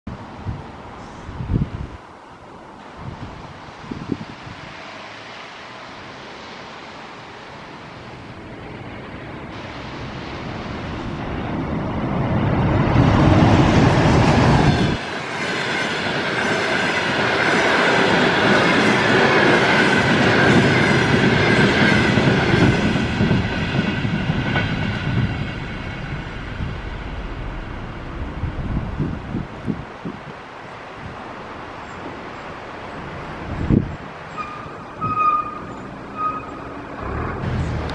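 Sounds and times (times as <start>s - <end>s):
electric train passing at speed: 0.1s - 37.9s
high whine: 25.1s - 29.8s.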